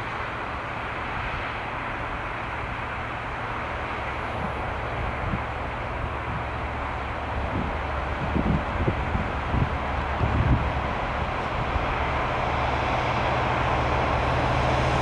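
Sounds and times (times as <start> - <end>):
distant diesel train rumble: 0.0 - 15.0
wind buffeting microphone: 4.3 - 15.0.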